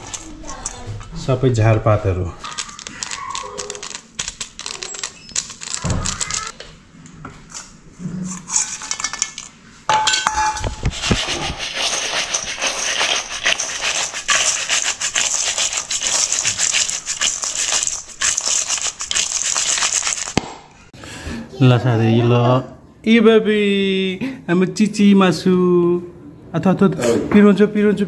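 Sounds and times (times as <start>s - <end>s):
noodles rattling in steel bowl: 0.0s - 1.1s, 2.4s - 6.5s, 10.9s - 20.4s
seasoning taps and rustles: 10.6s - 20.4s.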